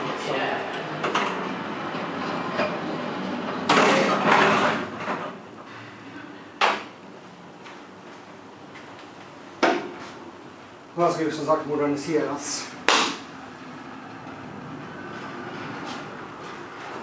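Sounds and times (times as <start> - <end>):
elevator doors sliding shut: 0.6 - 5.6, 13.2 - 17.0
elevator doors clacking closed: 0.7 - 5.4.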